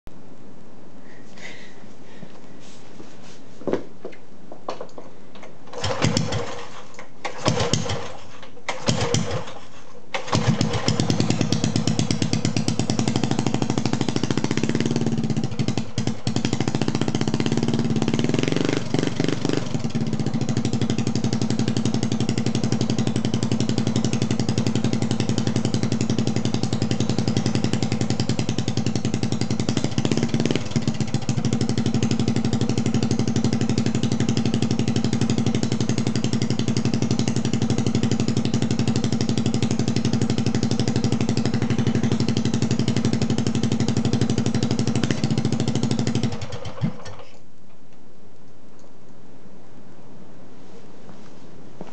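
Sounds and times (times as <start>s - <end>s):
engine running and revving: 10.2s - 46.9s.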